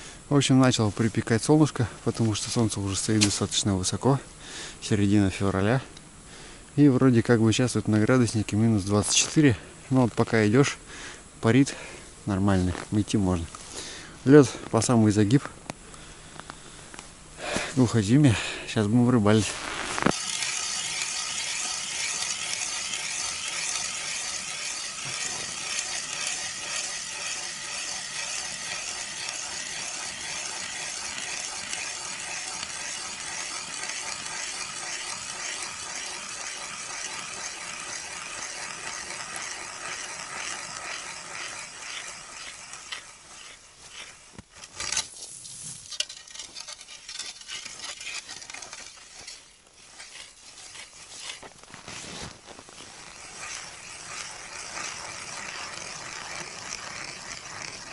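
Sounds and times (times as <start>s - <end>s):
ice auger scraping ice: 19.2s - 57.9s.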